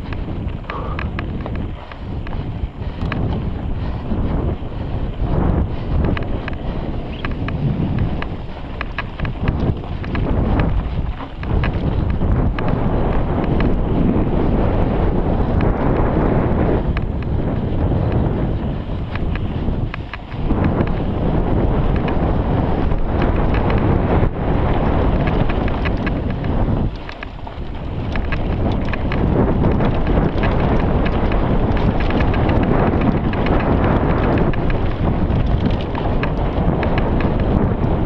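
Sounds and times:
mountain bike rattling: 0:00.0 - 0:38.0
tyres crackling over dirt: 0:00.0 - 0:38.0
wind rushing over microphone: 0:00.0 - 0:38.0.

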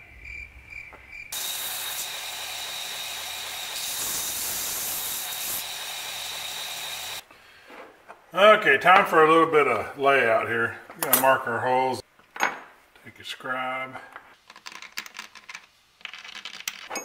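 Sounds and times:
belt grinder grinding steel: 0:01.4 - 0:07.2.

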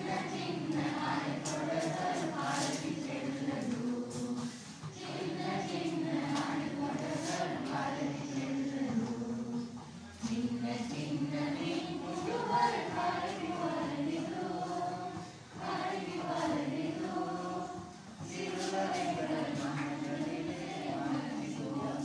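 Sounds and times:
group of voices singing: 0:00.0 - 0:22.0.

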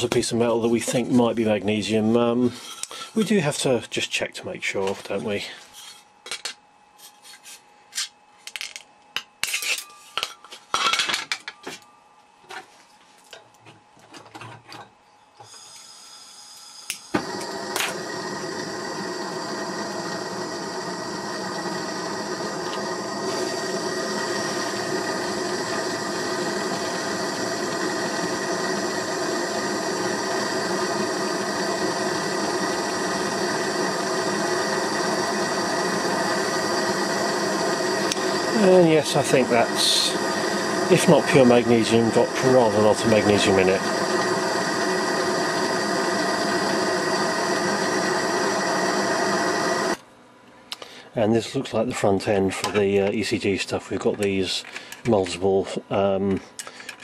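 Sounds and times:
gas torch hissing: 0:15.4 - 0:50.0.

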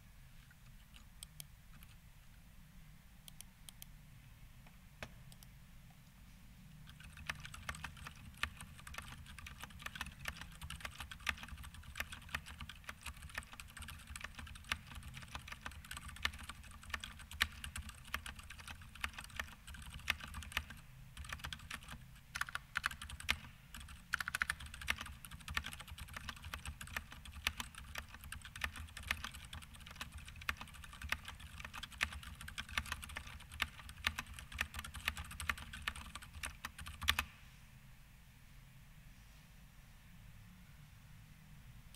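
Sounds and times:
fast typing on mechanical keyboard: 0:06.9 - 0:37.3.

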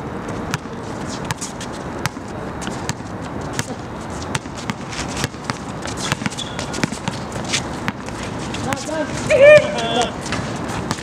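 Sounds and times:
sneakers squeaking: 0:00.2 - 0:11.0
players' voices: 0:08.1 - 0:10.6.

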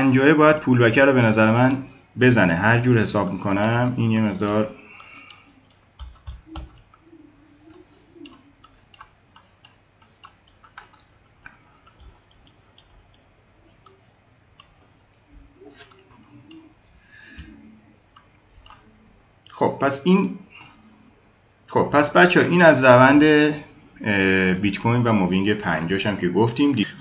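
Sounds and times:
computer mouse clicks: 0:03.2 - 0:16.7, 0:17.4 - 0:19.6.

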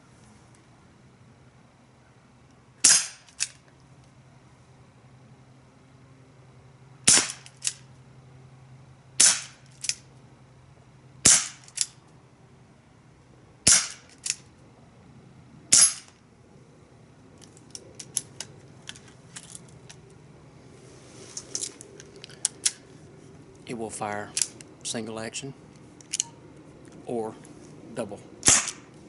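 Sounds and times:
air pistol shots cracking: 0:02.8 - 0:03.5, 0:07.0 - 0:07.8, 0:09.2 - 0:09.6, 0:11.2 - 0:11.9, 0:13.6 - 0:14.4, 0:15.7 - 0:16.2, 0:28.4 - 0:28.9.

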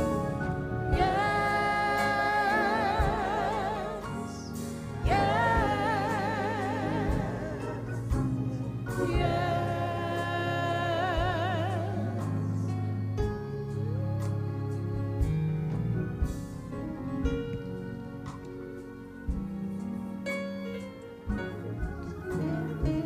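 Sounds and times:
low musical accompaniment: 0:00.0 - 0:23.0
person singing with vibrato: 0:00.8 - 0:12.8.

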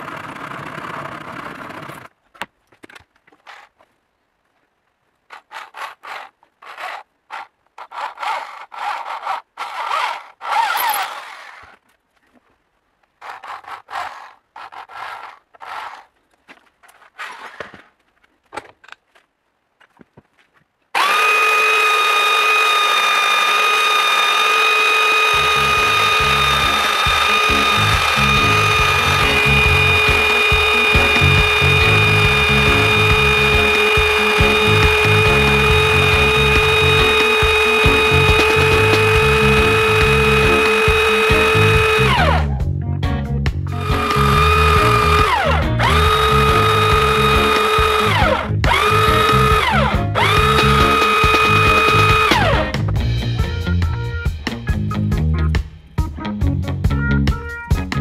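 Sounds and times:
belt sander whining: 0:00.0 - 0:02.2, 0:05.3 - 0:11.9, 0:13.2 - 0:17.9, 0:21.0 - 0:42.6, 0:43.7 - 0:53.2
wood grinding on sander belt: 0:00.0 - 0:02.2, 0:05.3 - 0:12.0, 0:13.0 - 0:18.0, 0:21.0 - 0:42.6, 0:43.7 - 0:53.0
steel tool rasping on wood: 0:05.3 - 0:11.8, 0:13.2 - 0:16.1, 0:21.0 - 0:42.3.

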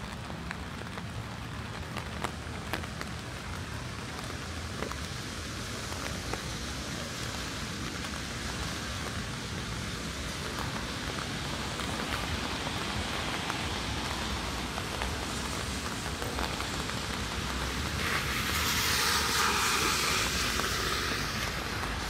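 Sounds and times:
rain on a street: 0:00.0 - 0:22.0
rushing hiss: 0:05.4 - 0:22.0.

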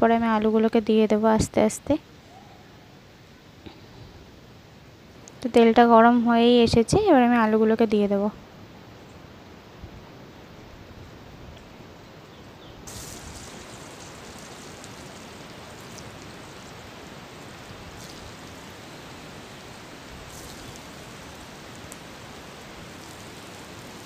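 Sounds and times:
potatoes sizzling in hot oil: 0:12.9 - 0:24.0.

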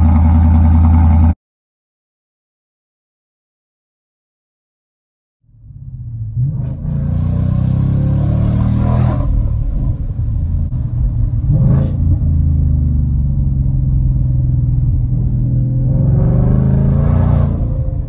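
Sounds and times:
car engine accelerating: 0:00.0 - 0:01.4, 0:05.5 - 0:18.0
exhaust drone: 0:00.0 - 0:01.4, 0:05.5 - 0:18.0.

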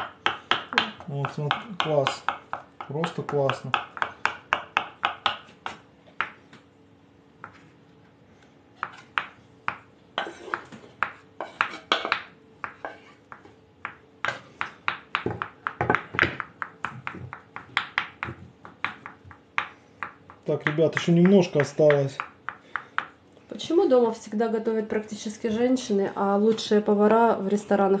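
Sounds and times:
knife chopping on wooden board: 0:00.0 - 0:06.4, 0:08.8 - 0:23.2.

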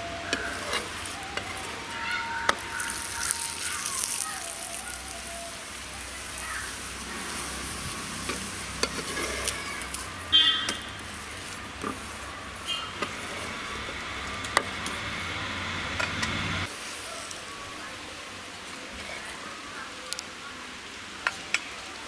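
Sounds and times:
flatbread sizzling in fat: 0:00.0 - 0:20.1
metal spatula scraping a pan: 0:00.3 - 0:01.6, 0:08.2 - 0:13.5.

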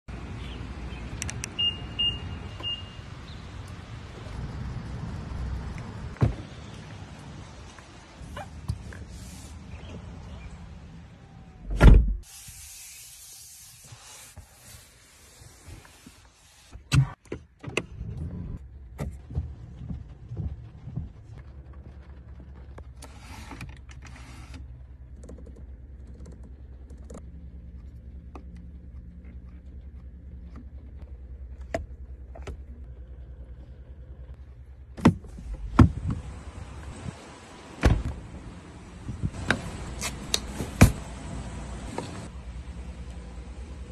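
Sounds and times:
car door thump: 0:11.7 - 0:12.2.

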